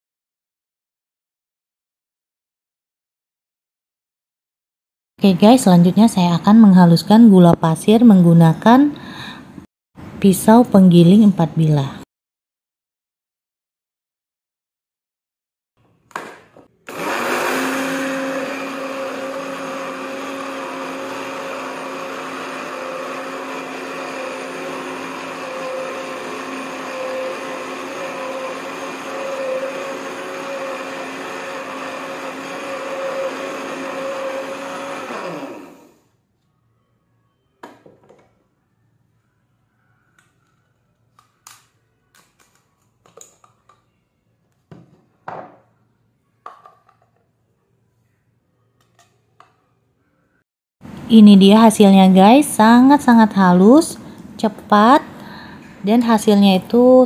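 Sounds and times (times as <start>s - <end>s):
blender motor whirring: 16.8s - 36.2s
plastic cup clicks: 41.2s - 43.9s.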